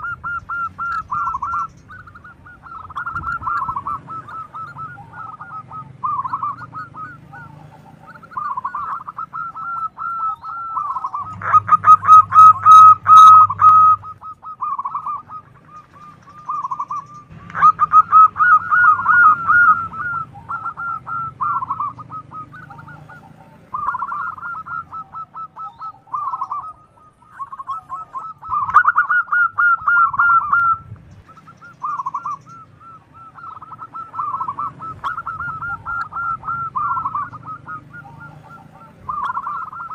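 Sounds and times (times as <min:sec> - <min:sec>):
doves cooing: 0:00.0 - 0:39.9.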